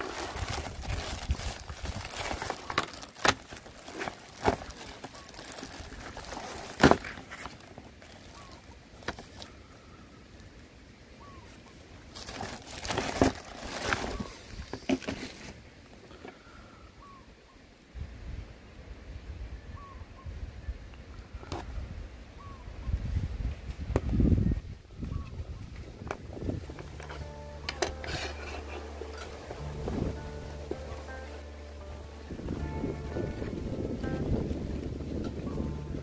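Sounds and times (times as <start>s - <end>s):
plastic bag rustling: 0.0s - 9.5s, 12.1s - 15.7s, 26.3s - 36.0s.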